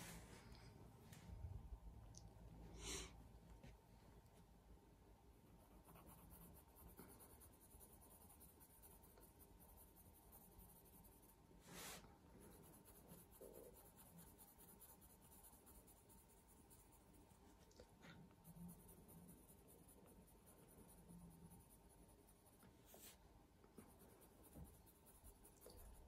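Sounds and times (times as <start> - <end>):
pencil scratching on paper: 5.5 - 17.4, 18.0 - 26.0.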